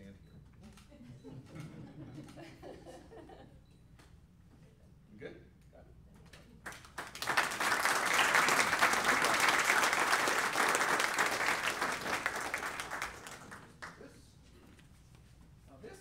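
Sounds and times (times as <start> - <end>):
audience applauding: 6.7 - 14.0.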